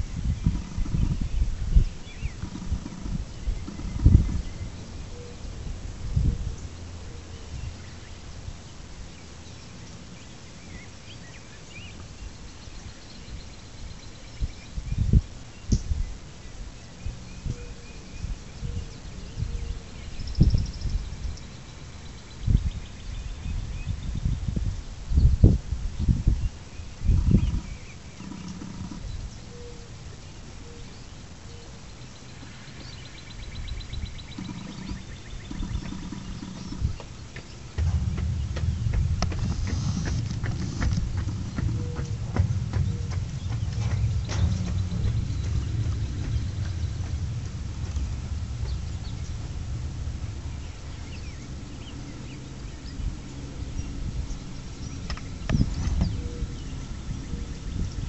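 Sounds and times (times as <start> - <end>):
low rumble: 0.0 - 8.6, 32.8 - 58.0
birds chirping: 0.0 - 58.0.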